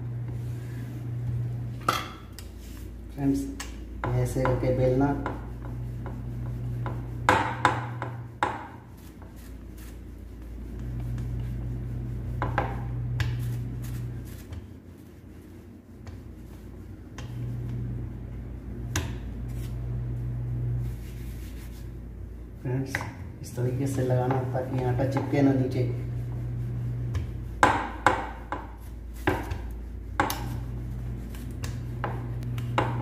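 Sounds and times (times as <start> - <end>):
low hum: 0.0 - 33.0
rolling pin rolling dough: 3.9 - 33.0
rolling pin knocking on board: 5.2 - 6.2, 6.8 - 8.8, 12.4 - 13.4, 27.1 - 30.6, 31.6 - 33.0.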